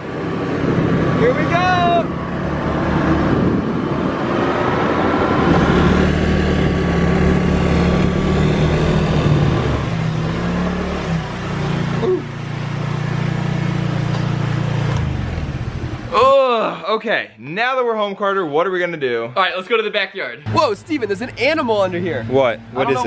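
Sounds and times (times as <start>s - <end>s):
wind rushing over microphone: 0.0s - 10.0s
scooter engine: 0.0s - 16.4s.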